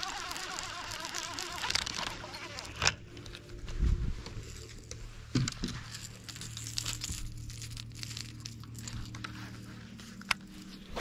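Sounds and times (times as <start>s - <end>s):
electric motor humming: 0.0s - 3.5s
crackling and rustling handling: 0.0s - 11.0s.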